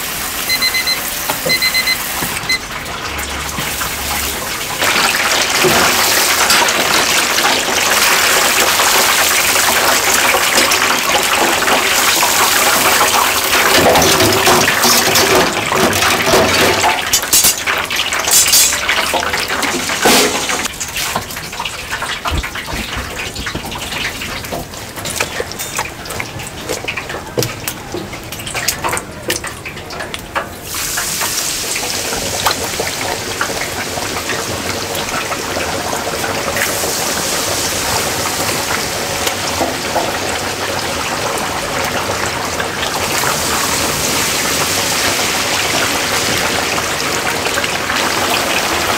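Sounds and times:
tap water running and splashing: 0:00.0 - 0:48.9
clatter and knocks: 0:22.2 - 0:25.9.

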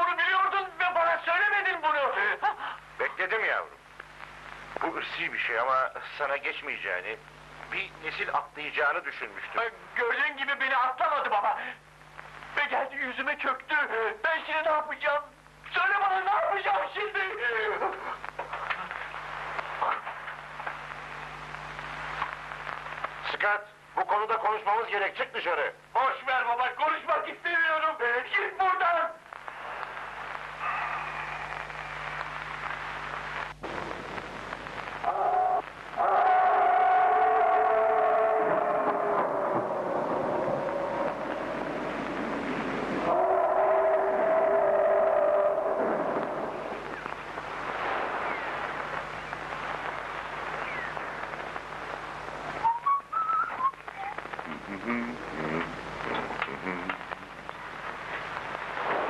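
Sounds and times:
steady hiss: 0:00.0 - 0:59.0
low hum: 0:38.0 - 0:59.0
man whistling a tune: 0:52.6 - 0:53.8.

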